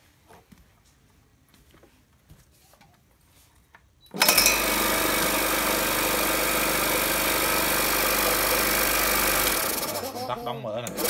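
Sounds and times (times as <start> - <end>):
electric air compressor running: 4.2 - 11.0.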